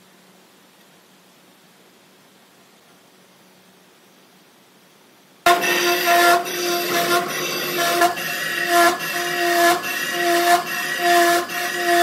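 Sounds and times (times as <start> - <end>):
metallic squeal of lathe cutting: 5.5 - 12.0.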